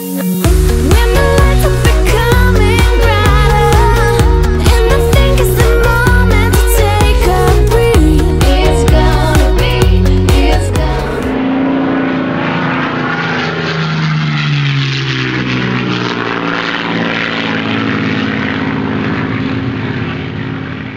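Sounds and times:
music: 0.0s - 11.4s
engine drone with rushing hiss: 0.1s - 20.9s.

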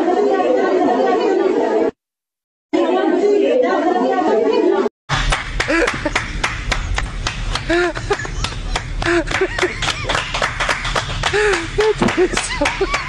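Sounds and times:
hands clapping: 5.2s - 13.0s.

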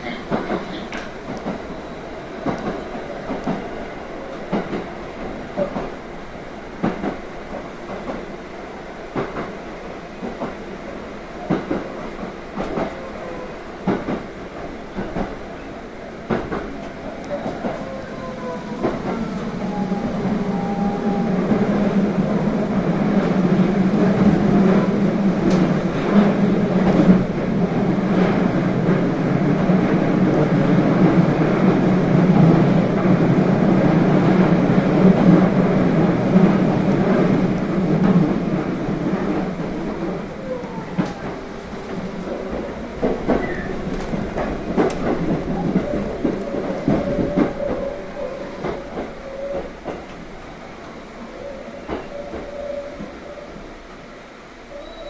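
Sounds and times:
sharp clicks of train: 0.0s - 1.7s, 2.4s - 3.7s, 4.3s - 6.0s, 6.8s - 8.3s, 9.1s - 9.6s, 10.2s - 10.7s, 11.4s - 13.1s, 13.8s - 15.5s, 16.2s - 18.0s, 24.0s - 27.4s, 39.2s - 51.0s, 51.8s - 53.1s
train rumbling: 0.0s - 55.0s.

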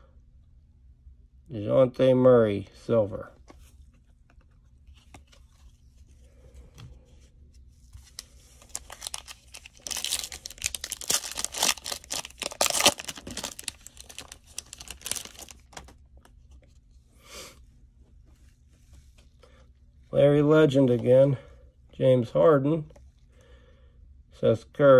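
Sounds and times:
plastic wrapper tearing: 8.2s - 16.0s.

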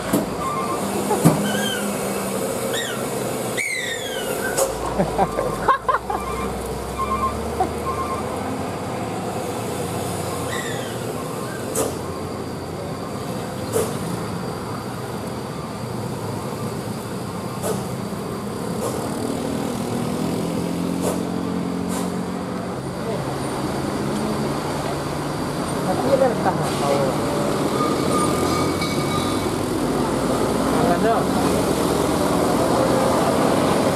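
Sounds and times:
truck engine and road noise: 0.0s - 33.9s.

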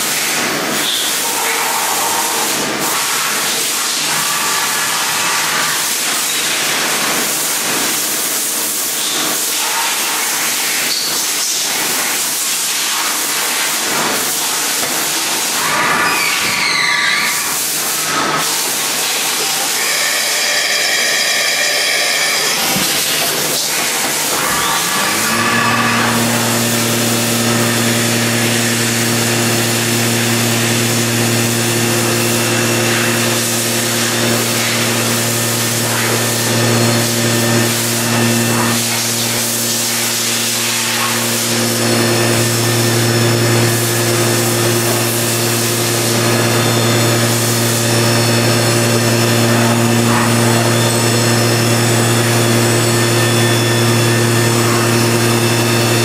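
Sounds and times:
machine low hum: 23.9s - 56.0s.

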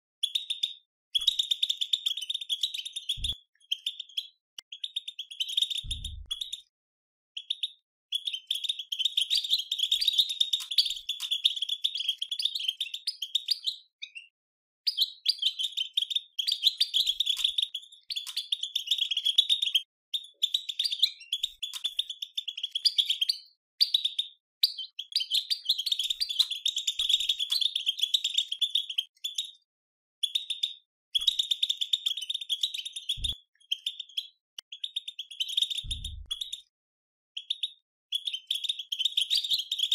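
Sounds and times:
low thumps: 5.9s - 6.3s, 35.9s - 36.3s.

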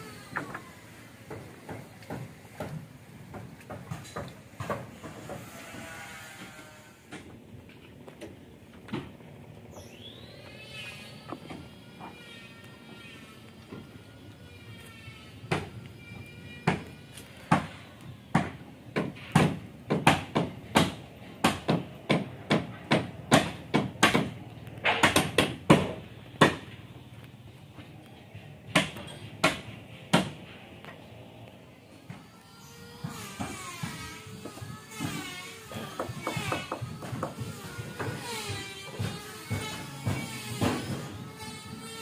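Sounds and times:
hammer striking wood: 1.3s - 5.6s, 17.5s - 26.8s, 28.7s - 30.4s, 33.0s - 41.1s.

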